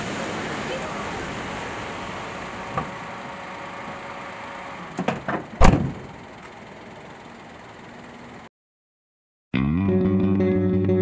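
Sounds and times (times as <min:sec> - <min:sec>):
car door click: 0:05.0 - 0:06.0
car door thump shutting: 0:05.0 - 0:06.1.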